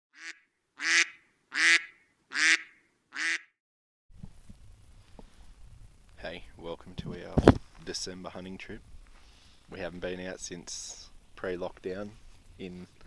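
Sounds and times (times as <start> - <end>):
duck quacking: 0.2 - 3.5
faint outdoor background noise: 4.1 - 13.0.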